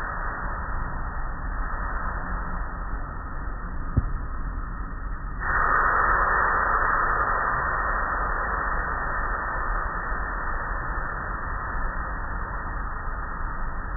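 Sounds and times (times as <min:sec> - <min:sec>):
low rumble: 0:00.0 - 0:05.4.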